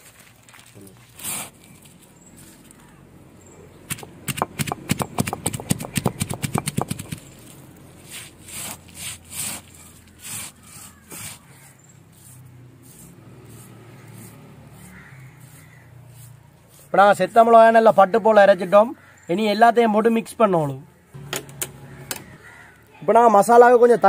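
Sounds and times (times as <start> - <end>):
stone-on-stone knocks: 3.9 - 7.2
stone rubbing strokes: 3.9 - 17.5.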